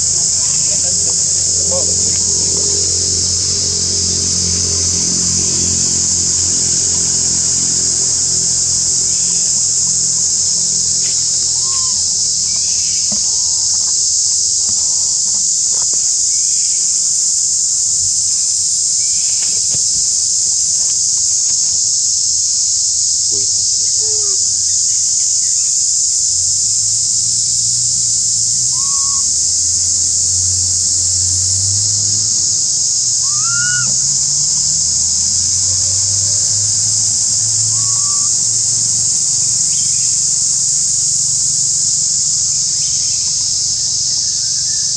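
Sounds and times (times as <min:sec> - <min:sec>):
insect chorus drone: 0:00.0 - 0:44.9
short chirping calls: 0:06.6 - 0:14.0, 0:28.7 - 0:29.3, 0:33.1 - 0:40.4.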